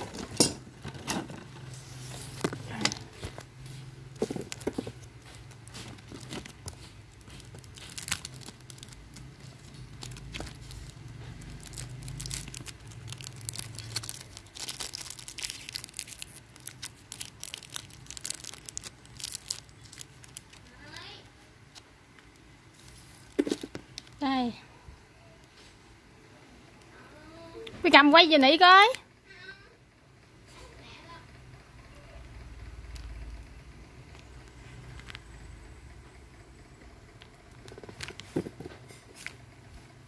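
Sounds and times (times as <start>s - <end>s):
plastic wrapper crinkling: 1.7s - 24.5s, 37.2s - 39.4s.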